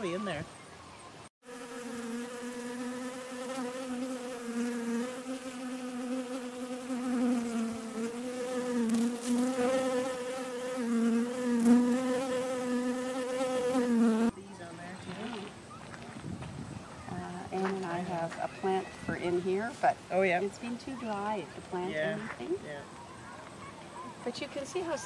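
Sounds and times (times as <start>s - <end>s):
bee buzzing in flight: 1.4s - 14.3s.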